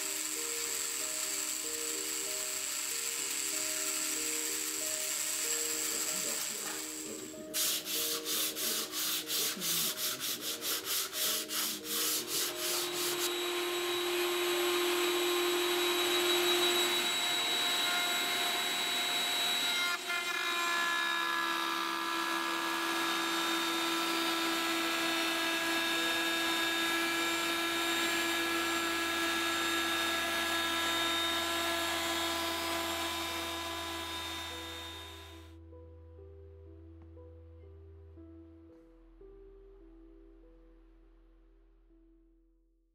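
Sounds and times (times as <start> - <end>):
router table motor running: 0.0 - 35.5
hand sanding wood: 5.7 - 13.4, 23.8 - 35.3.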